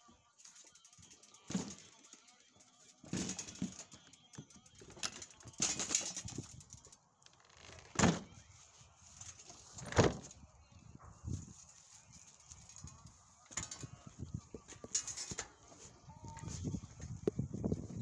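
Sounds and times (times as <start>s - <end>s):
bicycle knocking and rattling: 0.4s - 7.0s, 11.2s - 18.0s.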